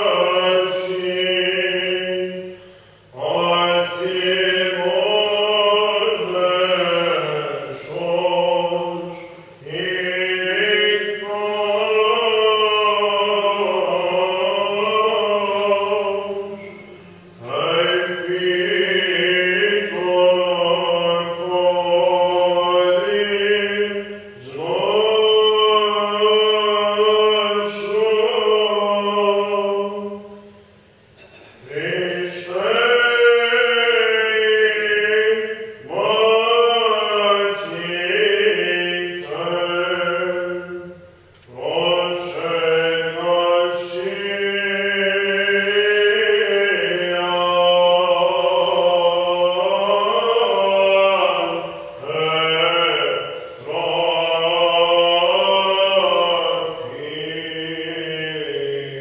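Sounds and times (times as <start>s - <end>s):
solo chanter singing: 0.0s - 59.0s
singer breathing: 2.5s - 3.1s, 53.4s - 53.6s.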